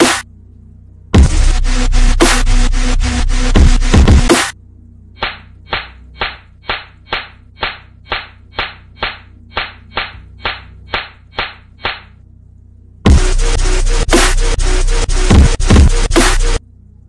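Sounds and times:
clap-like percussion beat: 0:00.0 - 0:00.2, 0:03.6 - 0:04.6, 0:05.2 - 0:12.1, 0:15.3 - 0:16.5
dubstep track: 0:00.0 - 0:00.2, 0:01.2 - 0:04.6, 0:13.1 - 0:16.6.

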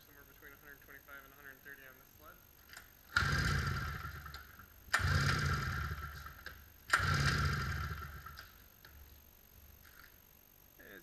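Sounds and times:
two-stroke engine cranked by hand: 0:03.1 - 0:08.5.

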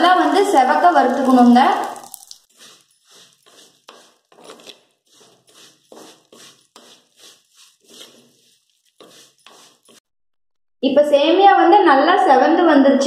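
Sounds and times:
spoon scraping a clay pot: 0:00.0 - 0:10.1.

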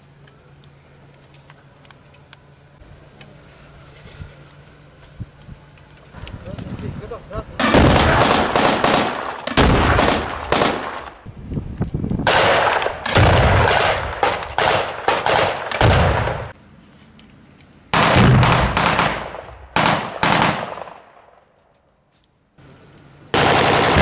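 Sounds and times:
rapid rifle gunfire bursts: 0:07.6 - 0:11.2, 0:12.3 - 0:16.5, 0:18.0 - 0:21.0, 0:23.3 - 0:24.0.

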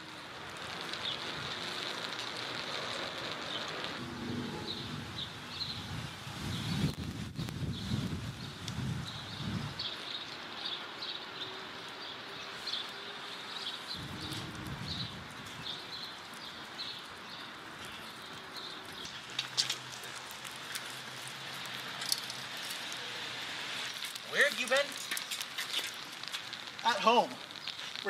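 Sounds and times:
faint steady hiss: 0:05.8 - 0:28.0.

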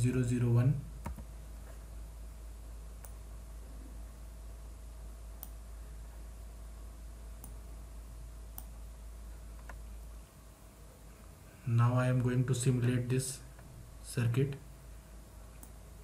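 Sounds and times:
low electrical hum: 0:00.0 - 0:16.0
computer mouse clicks: 0:01.0 - 0:01.3, 0:03.0 - 0:03.2, 0:05.4 - 0:05.6, 0:08.5 - 0:08.8, 0:15.6 - 0:15.8.

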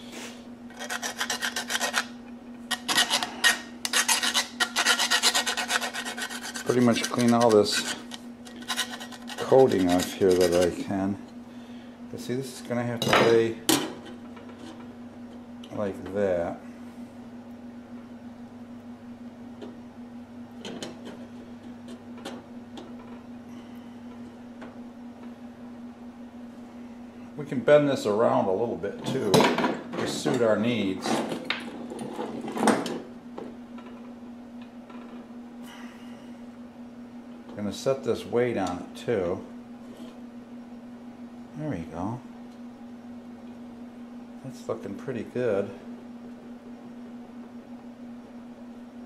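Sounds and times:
steady hum: 0:00.0 - 0:49.0
file rasping on steel: 0:00.7 - 0:02.1, 0:02.7 - 0:10.8.

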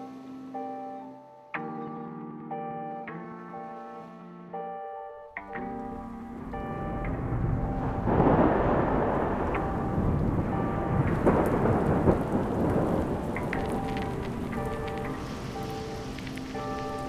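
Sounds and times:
steady rain: 0:05.5 - 0:17.0
thunder rumbling: 0:05.5 - 0:17.0.

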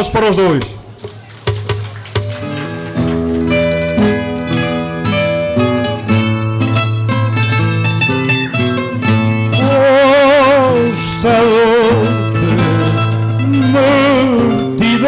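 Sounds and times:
plucked string instrumental music: 0:00.8 - 0:15.0
man singing with vibrato: 0:09.3 - 0:15.0.

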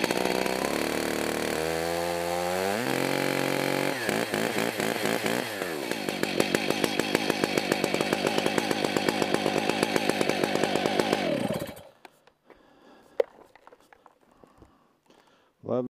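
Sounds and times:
chainsaw engine idling: 0:00.0 - 0:12.0.

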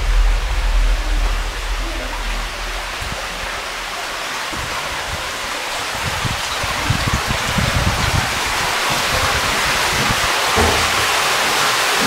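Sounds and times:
low thumps: 0:00.0 - 0:05.2
running water hissing in a cave: 0:00.0 - 0:12.0.

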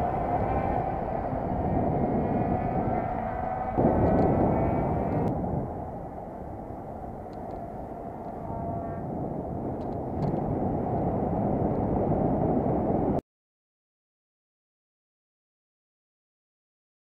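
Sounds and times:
tyre and road rumble: 0:00.0 - 0:13.2
wind buffeting microphone: 0:00.0 - 0:13.2.

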